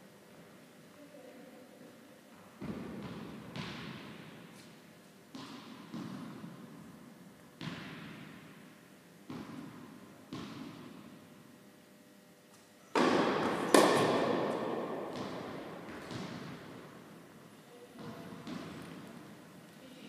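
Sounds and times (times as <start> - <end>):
tennis ball bouncing on hard court: 2.6 - 4.4, 5.3 - 6.8, 7.6 - 8.6, 9.3 - 11.2, 12.9 - 17.0, 18.0 - 19.2
racket striking tennis ball: 5.3 - 6.6, 12.9 - 17.0.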